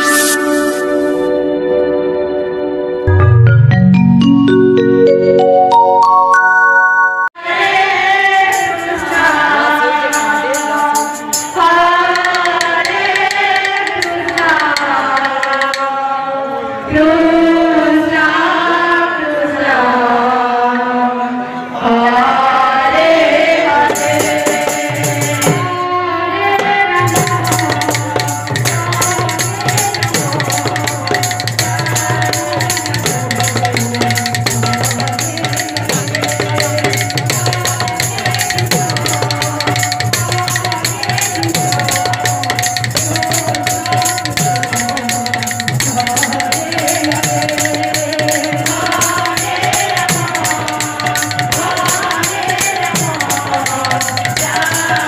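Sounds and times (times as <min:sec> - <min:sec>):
woman singing into a microphone: 0:07.4 - 0:55.0
jingling metal percussion: 0:07.7 - 0:16.0, 0:23.8 - 0:25.8, 0:27.0 - 0:55.0
hand drum: 0:08.4 - 0:15.9, 0:23.8 - 0:25.8, 0:26.5 - 0:55.0.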